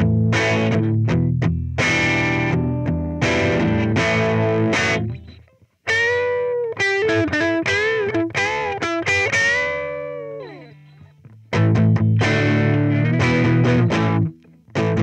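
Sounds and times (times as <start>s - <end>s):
distorted electric guitar: 0.0s - 15.0s.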